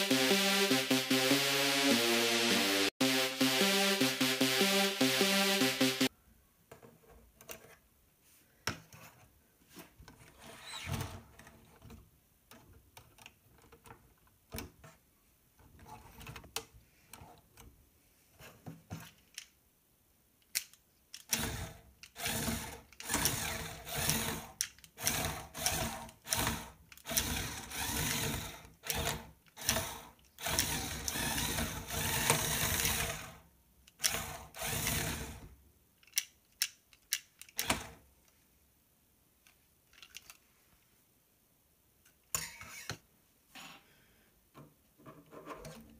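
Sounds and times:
small electric motors whirring: 0:29.6 - 0:33.2.

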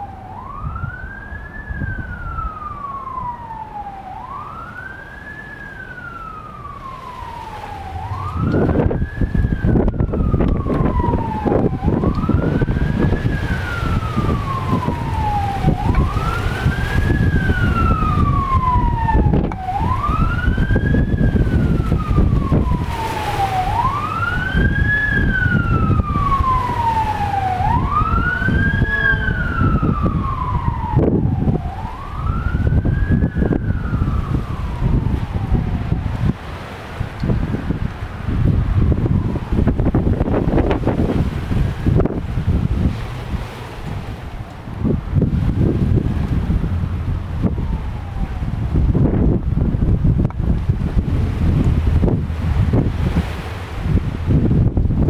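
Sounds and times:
siren wailing: 0:00.0 - 0:54.8
wind buffeting microphone: 0:00.0 - 0:55.0.

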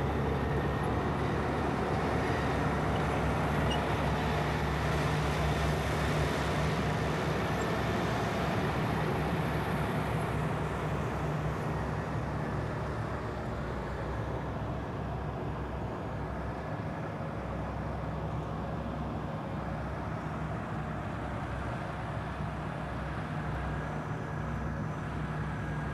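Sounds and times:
bulldozer diesel engine running: 0:00.0 - 0:16.5.

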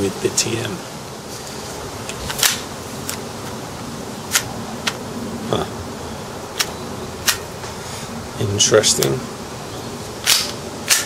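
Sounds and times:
pistol slide clicks: 0:10.2 - 0:11.0.

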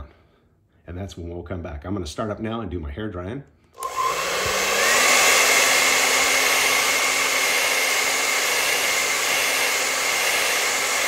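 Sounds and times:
hair dryer running: 0:03.8 - 0:11.0.

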